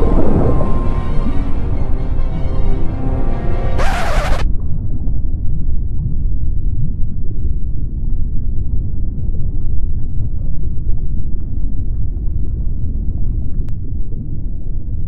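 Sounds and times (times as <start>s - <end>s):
loud low rumble: 0.0s - 3.8s.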